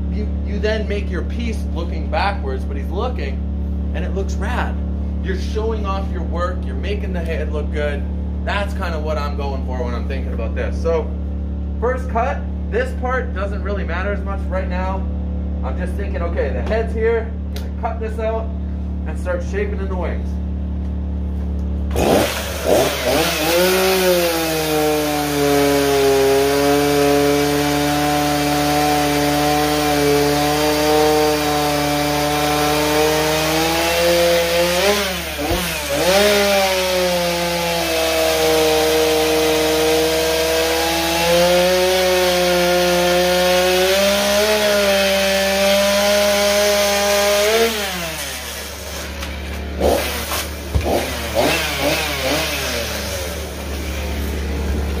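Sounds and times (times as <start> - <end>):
chainsaw cutting wood: 3.9 - 10.6, 20.7 - 55.0.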